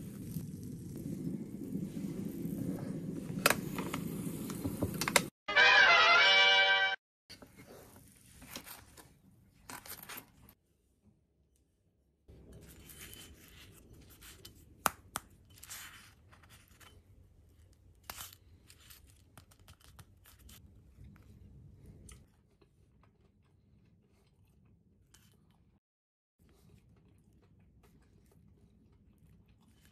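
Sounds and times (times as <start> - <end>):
sandwich crust crackling and tearing: 17.6 - 20.6.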